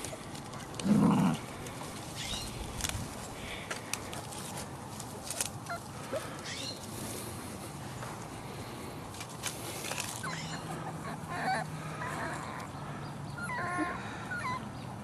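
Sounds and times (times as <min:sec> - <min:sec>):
rustling in grass: 0:00.0 - 0:10.4
puppies squeaking: 0:10.2 - 0:12.7, 0:13.4 - 0:14.6.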